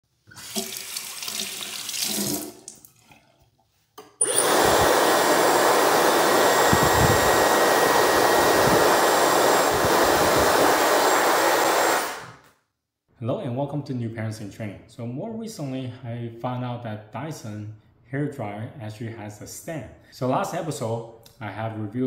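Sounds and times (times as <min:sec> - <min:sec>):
hair dryer blowing: 0:04.2 - 0:12.5.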